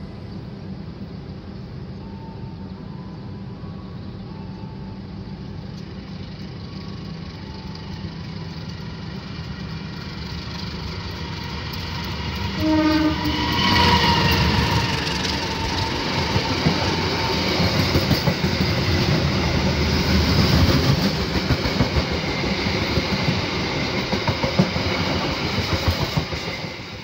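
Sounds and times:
passing train rushing: 0:00.0 - 0:27.0
train rumbling: 0:00.0 - 0:27.0
locomotive horn: 0:12.4 - 0:16.0.

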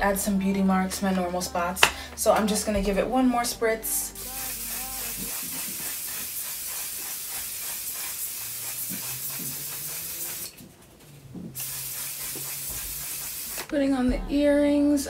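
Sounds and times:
spray bottle misting hiss: 0:04.2 - 0:10.7, 0:11.4 - 0:13.7.

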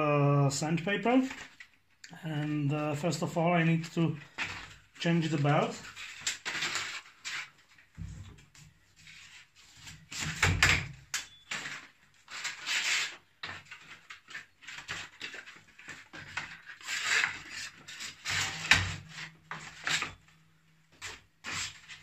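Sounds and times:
sanding belt scraping and rustling: 0:12.2 - 0:20.1, 0:21.4 - 0:22.0.

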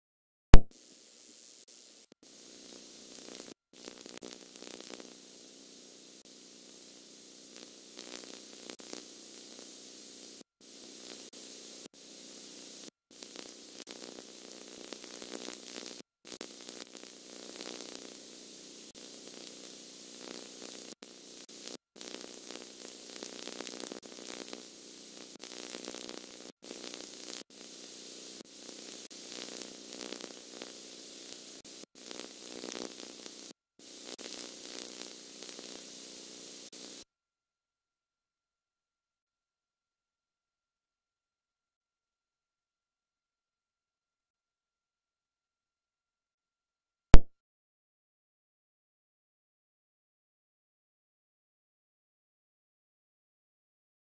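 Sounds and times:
static hiss: 0:00.8 - 0:37.0.

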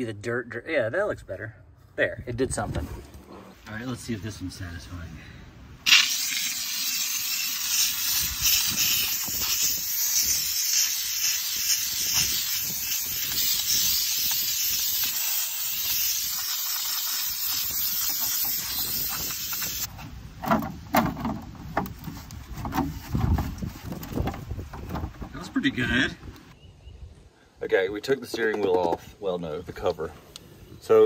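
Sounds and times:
steam cleaner hissing: 0:05.9 - 0:19.9.

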